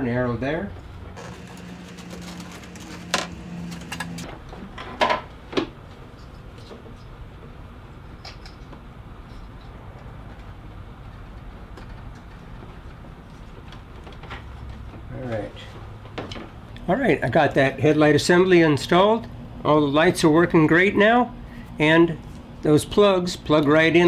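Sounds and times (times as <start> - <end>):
low steady hum: 0.8 - 4.8.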